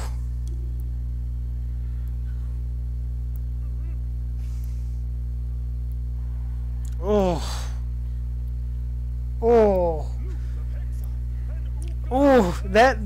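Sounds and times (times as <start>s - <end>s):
low electrical hum: 0.0s - 13.0s
character sobbing: 7.0s - 7.7s.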